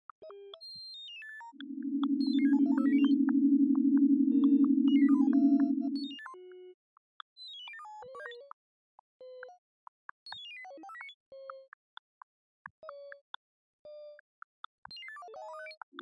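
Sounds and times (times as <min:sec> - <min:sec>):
brief held electronic tones: 0:01.6 - 0:06.0
synthesized beeps: 0:01.6 - 0:06.0.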